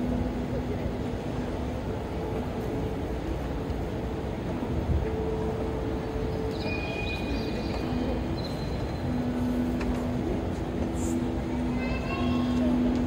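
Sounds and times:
train station rumble: 0.0 - 13.0.

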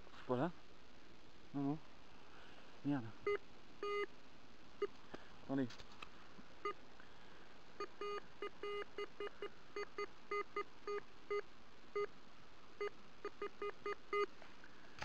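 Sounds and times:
metal detector beeps: 3.8 - 4.1, 7.8 - 11.4.

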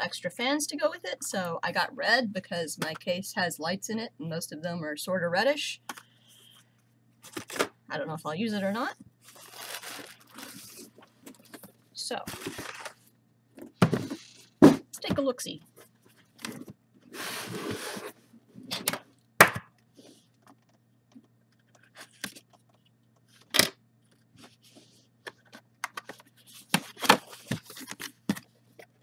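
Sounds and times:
cardboard sleeve scraping: 17.1 - 18.2.

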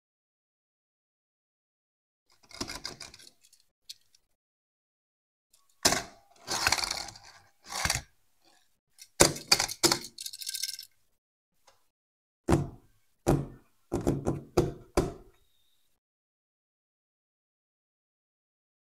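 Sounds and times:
toy car knocking and scraping: 2.3 - 4.2, 5.6 - 11.0.

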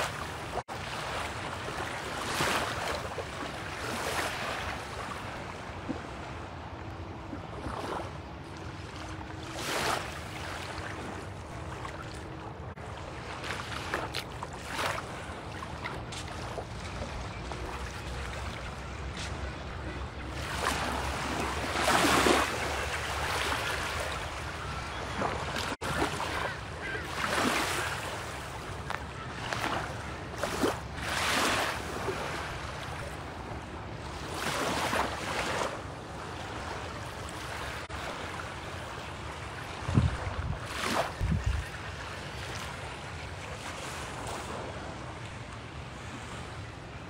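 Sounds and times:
small waves washing on sand: 0.0 - 6.6, 7.2 - 19.3, 25.1 - 47.0
wind rumble on microphone: 39.7 - 41.9.

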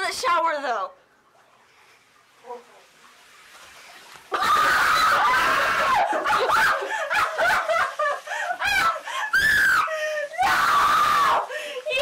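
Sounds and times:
women shrieking laughter: 4.3 - 11.4.

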